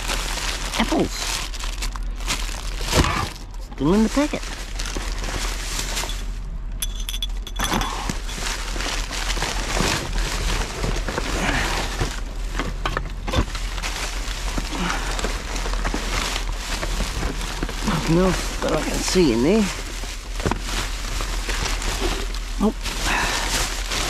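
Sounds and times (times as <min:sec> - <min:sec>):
plastic bags rustling: 0:00.0 - 0:24.0
rubbish knocking and clinking: 0:06.0 - 0:08.4.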